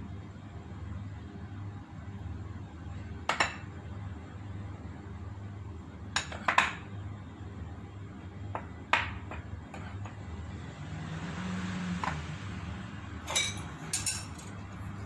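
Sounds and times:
metal spoon clinking porcelain bowl: 13.3 - 14.6.

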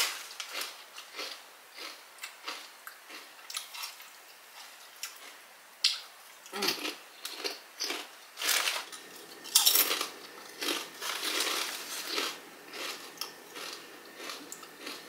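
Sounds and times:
chip bag rustling: 0.0 - 1.3, 7.8 - 15.0
potato chips crunching: 0.0 - 4.0, 6.5 - 15.0.

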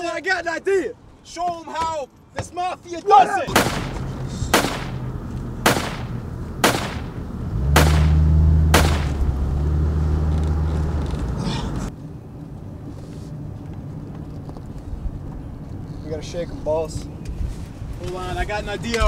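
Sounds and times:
gunshots: 3.5 - 9.2.

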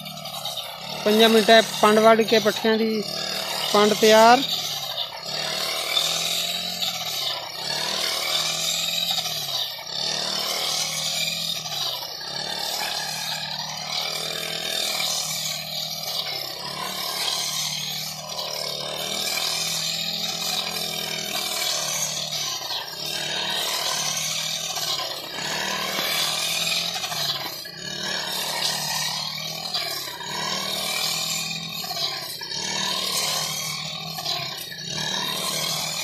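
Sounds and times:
brush cutter engine cutting: 0.0 - 36.0.

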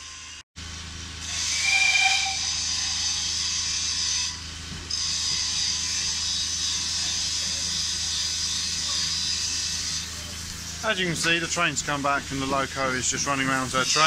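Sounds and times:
steam locomotive hissing: 1.2 - 14.0
brief high squeal: 1.3 - 3.5.

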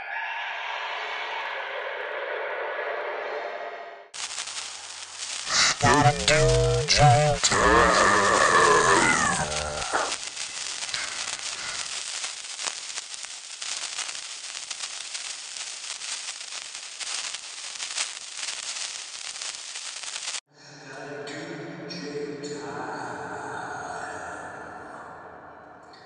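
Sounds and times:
sparkler fizzing and crackling: 4.2 - 20.5.

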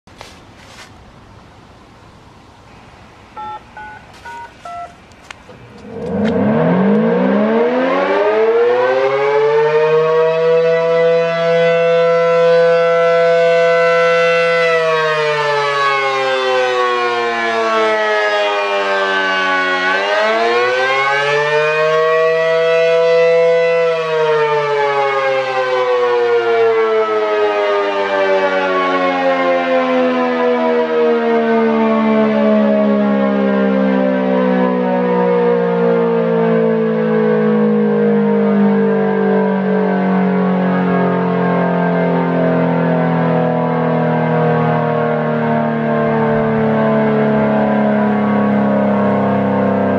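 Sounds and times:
rotating warning siren: 2.1 - 49.9
electronic activation tones: 3.4 - 7.4.

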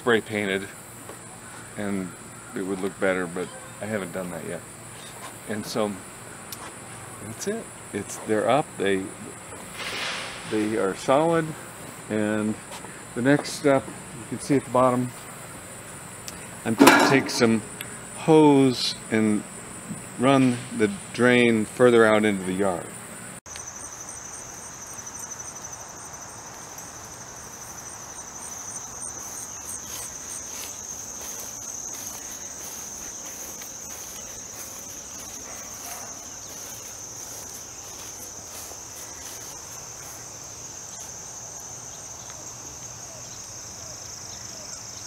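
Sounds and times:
insects trilling: 0.0 - 45.0
higher pulsing insect trill: 10.6 - 45.0.

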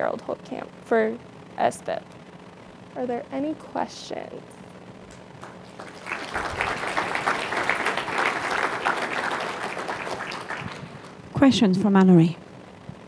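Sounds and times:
audience applauding: 5.4 - 11.2.

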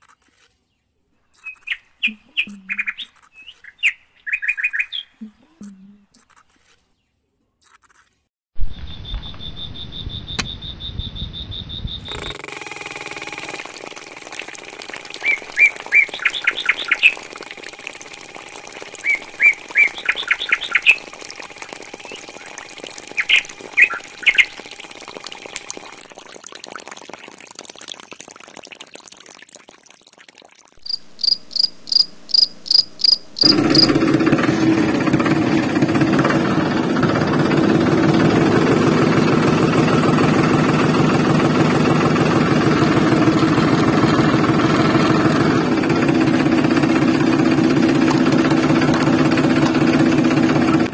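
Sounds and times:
birds chirping: 0.8 - 6.2, 15.1 - 17.3, 18.9 - 21.2, 21.9 - 24.6
motor running with fast beat: 12.1 - 26.2, 32.6 - 50.9.

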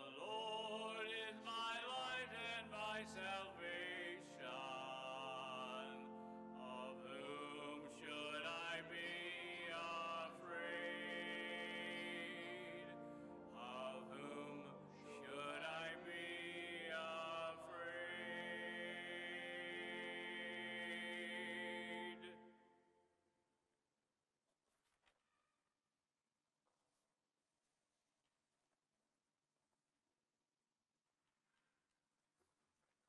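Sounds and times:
man singing a psalm: 0.0 - 22.6.

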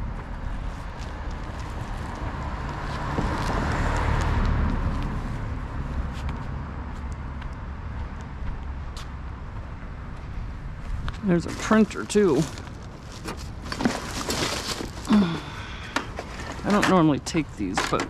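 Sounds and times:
car engine rumbling: 0.0 - 18.0
footsteps on concrete: 0.2 - 5.2, 6.0 - 11.9.

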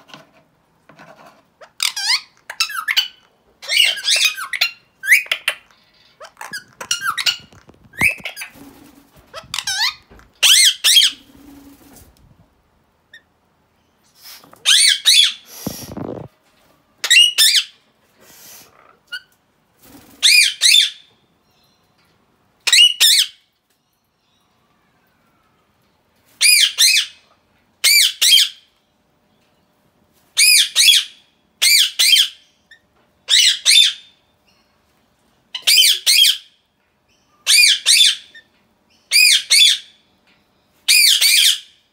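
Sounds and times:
parrot screeching: 1.6 - 8.5, 33.3 - 34.0, 35.6 - 36.4, 37.4 - 38.4.

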